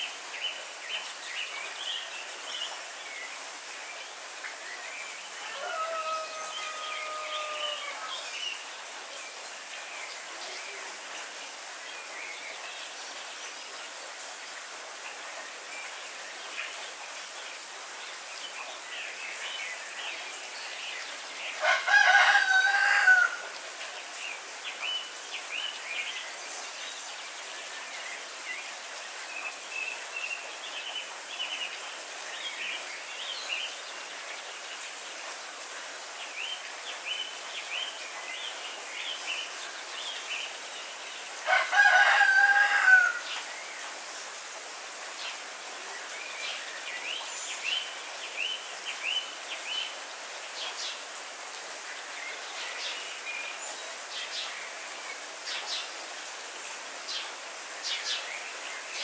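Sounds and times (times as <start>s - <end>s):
heavy rain: 0.0s - 59.0s
rooster crowing: 5.4s - 8.2s, 21.6s - 23.4s, 41.5s - 43.3s.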